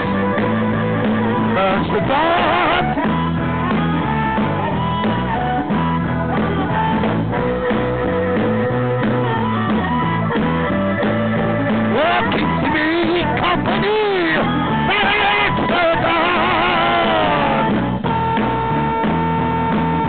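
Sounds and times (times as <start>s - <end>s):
rock band music: 0.0s - 20.0s
person singing: 1.4s - 3.0s, 11.9s - 17.7s.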